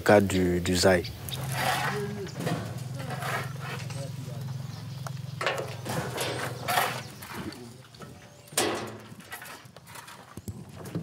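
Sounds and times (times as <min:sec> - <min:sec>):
shovel scraping into compost: 0:01.4 - 0:04.1, 0:05.7 - 0:07.7.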